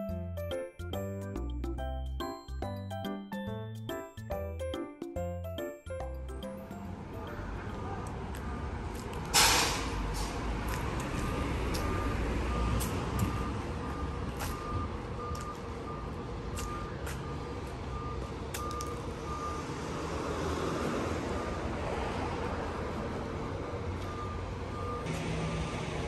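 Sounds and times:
street traffic rumble: 4.4s - 26.0s
truck reversing alarm beeping: 5.2s - 8.7s, 11.1s - 26.0s
hissing air burst: 9.4s - 10.4s.

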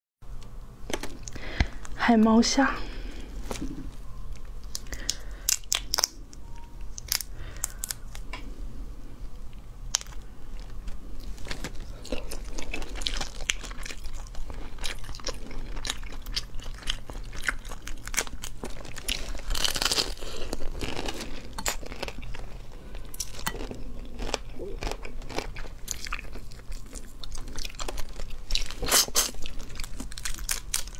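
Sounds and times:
prawn shells cracking: 4.4s - 8.3s, 11.4s - 30.9s
chewing and biting: 9.9s - 30.9s.

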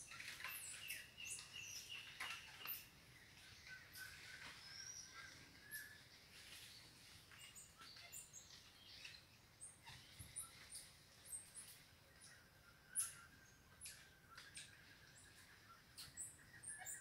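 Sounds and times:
animal chirps and thin whistles: 12.9s - 14.7s.

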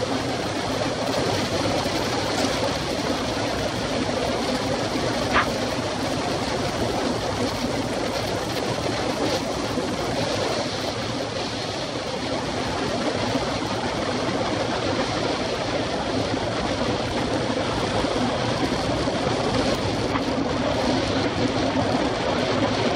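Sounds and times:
bike tyres on tarmac: 5.3s - 5.6s.

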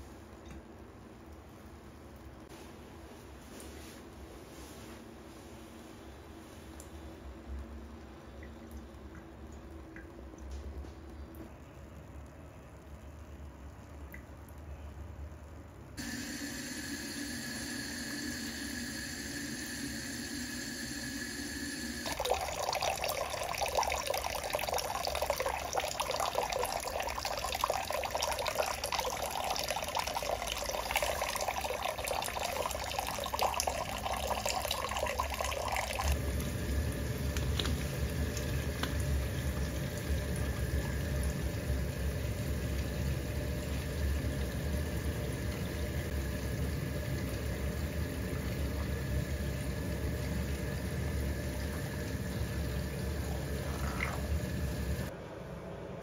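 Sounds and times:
faucet running into a steel sink: 16.0s - 36.2s, 46.6s - 55.1s.

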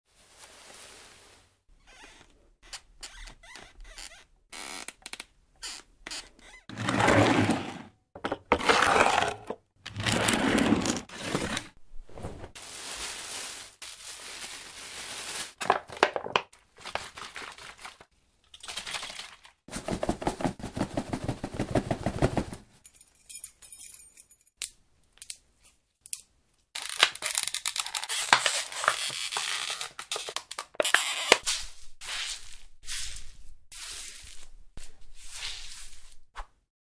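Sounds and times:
rustles: 0.1s - 1.6s
scrapes: 8.5s - 13.0s.

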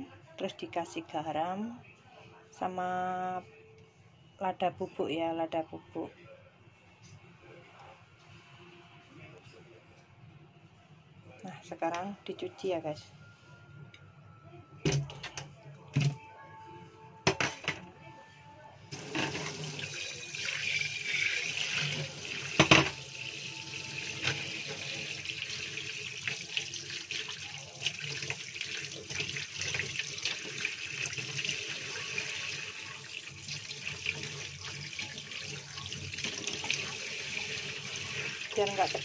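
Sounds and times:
tap running into steel sink: 21.8s - 23.0s.

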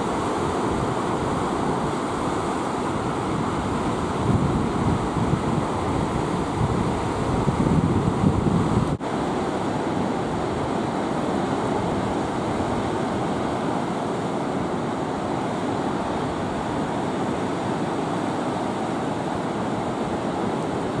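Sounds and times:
wind on microphone: 0.0s - 9.0s
ocean surf breaking: 0.0s - 21.0s.

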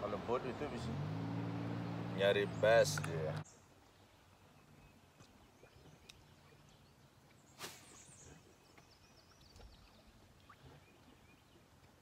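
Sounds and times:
fishing rod cast swish: 7.6s - 8.1s.

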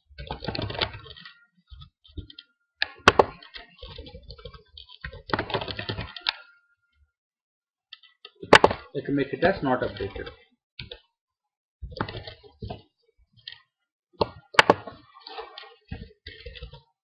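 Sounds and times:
typing on computer keyboard: 0.2s - 6.4s.

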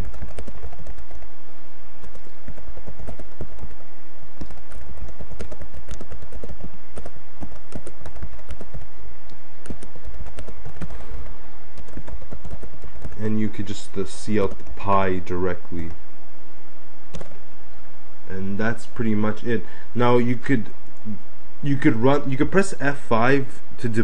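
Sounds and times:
steady low rumble: 0.0s - 24.0s
keyboard key clicks: 4.4s - 8.9s.

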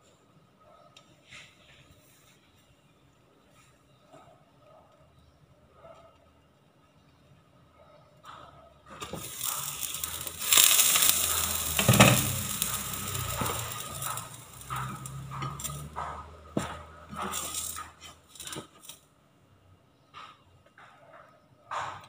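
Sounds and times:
sizzling in a hot pan: 9.0s - 15.9s, 17.2s - 17.9s
spatula scraping in a pan: 9.0s - 18.5s.

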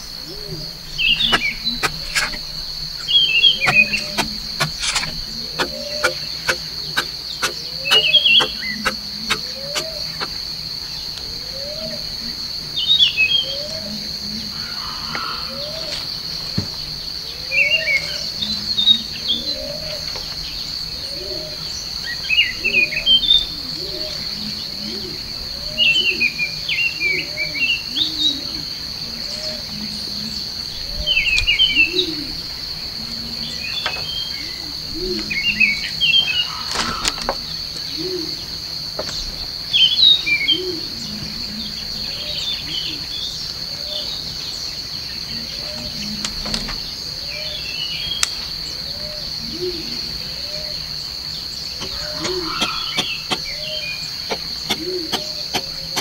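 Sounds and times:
lower arching bird calls: 0.0s - 16.0s, 17.2s - 38.6s, 47.1s - 56.0s
high insect drone: 0.0s - 56.0s
quick bird chirps: 0.9s - 10.4s
sharp knocks: 1.2s - 2.4s, 3.0s - 10.3s.

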